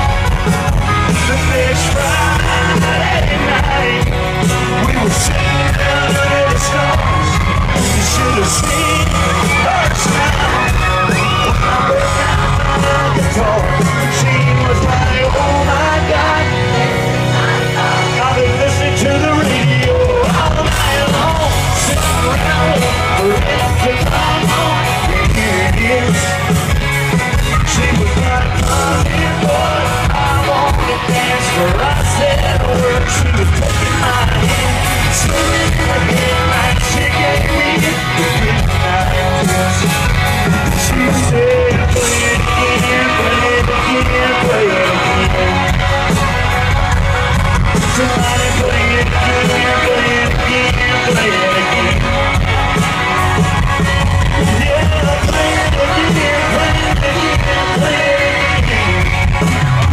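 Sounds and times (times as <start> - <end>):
fans yelling along: 0.0 - 59.9
live country band: 0.0 - 59.9
man singing: 0.0 - 59.9.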